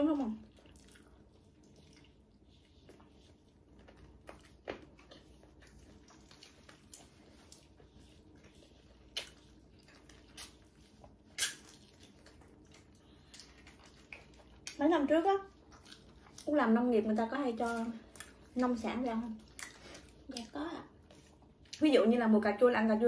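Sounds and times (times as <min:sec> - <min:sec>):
chewing and sucking: 0:00.2 - 0:14.8, 0:15.5 - 0:16.6, 0:17.6 - 0:21.8
lip smacks: 0:00.4 - 0:14.8.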